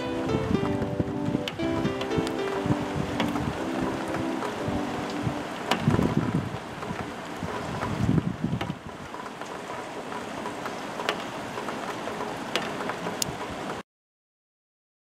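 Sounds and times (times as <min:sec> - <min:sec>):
wind rumble on microphone: 0:00.0 - 0:09.2
rain falling on wet ground: 0:00.0 - 0:13.8.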